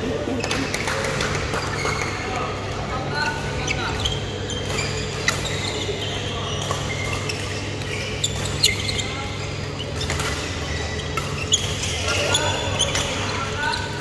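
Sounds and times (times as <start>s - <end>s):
shoe squeaks on court floor: 3.2s - 14.0s.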